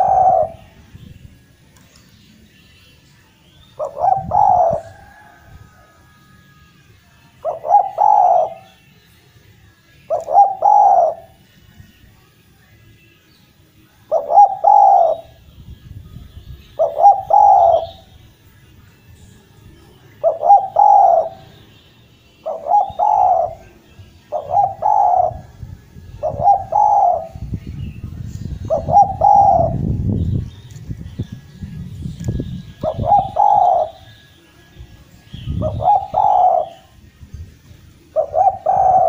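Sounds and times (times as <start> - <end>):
dove cooing: 0.0 - 0.8, 3.8 - 6.0, 7.4 - 8.8, 10.1 - 11.4, 14.1 - 15.4, 16.8 - 18.1, 20.2 - 21.6, 22.4 - 25.6, 26.2 - 27.5, 28.5 - 29.9, 32.6 - 34.2, 35.4 - 37.0, 38.1 - 39.0.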